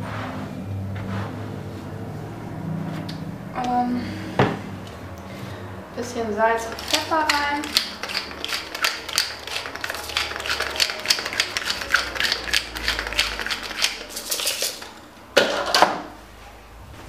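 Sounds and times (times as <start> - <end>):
spice mill grinding: 6.7 - 14.9.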